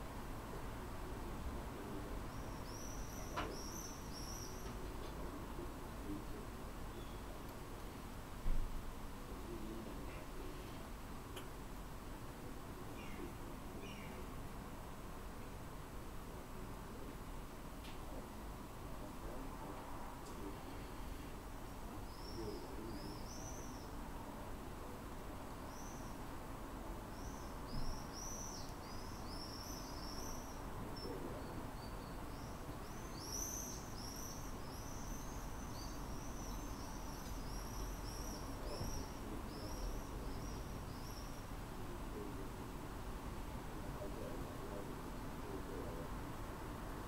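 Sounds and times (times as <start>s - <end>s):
small bird chirping: 2.2s - 4.8s, 22.0s - 24.0s, 27.1s - 41.5s.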